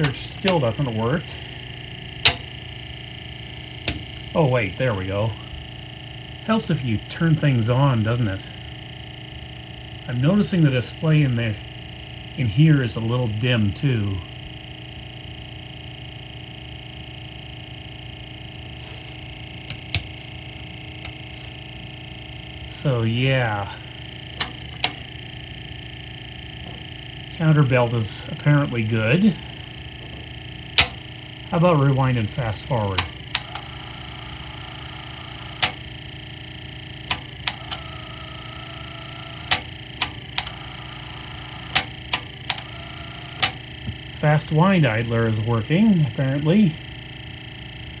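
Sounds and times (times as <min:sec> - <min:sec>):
sharp control clicks: 0:00.0 - 0:00.8, 0:02.2 - 0:02.5, 0:19.6 - 0:20.1, 0:24.4 - 0:25.0, 0:30.8 - 0:31.0, 0:32.9 - 0:35.8, 0:37.1 - 0:43.6
motor humming with high whine: 0:00.0 - 0:48.0.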